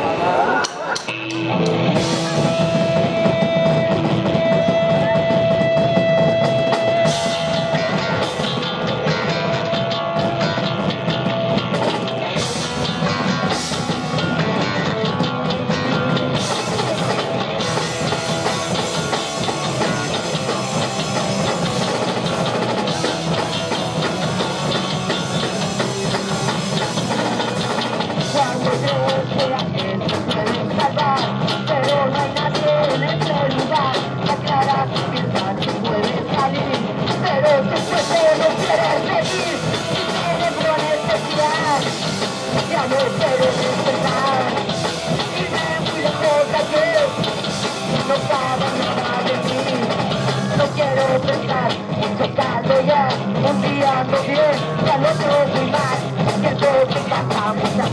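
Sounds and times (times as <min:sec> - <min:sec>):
drum kit: 0:00.0 - 0:57.9
electric bass: 0:00.0 - 0:57.9
electric guitar: 0:00.0 - 0:57.9.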